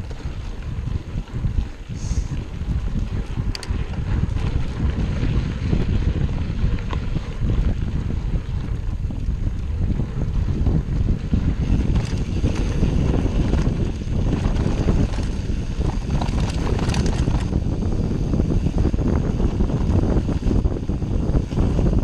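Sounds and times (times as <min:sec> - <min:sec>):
tyres rumbling on rough trail: 0:00.0 - 0:22.0
wind buffeting microphone: 0:00.0 - 0:22.0
bike rattles and knocks: 0:03.1 - 0:17.9.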